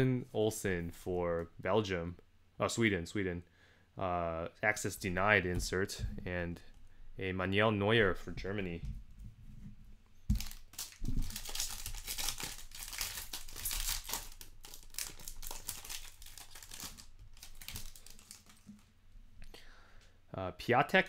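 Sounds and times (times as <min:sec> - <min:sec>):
foil wrapper tearing and crinkling: 0:10.3 - 0:18.8.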